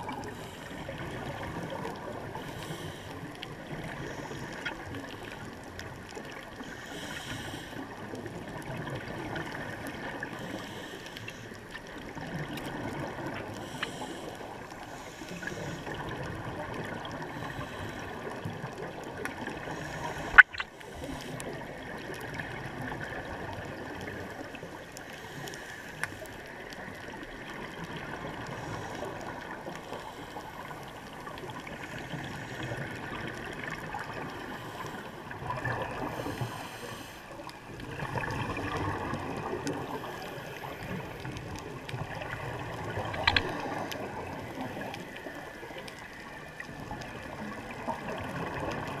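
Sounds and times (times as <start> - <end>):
underwater rushing hiss: 0.0 - 5.5, 6.6 - 8.1, 9.4 - 11.6, 12.8 - 18.5, 19.4 - 22.5, 28.3 - 31.0, 31.6 - 41.4
scuba exhaust bubbles gurgling: 0.0 - 49.0
small click: 43.1 - 43.6.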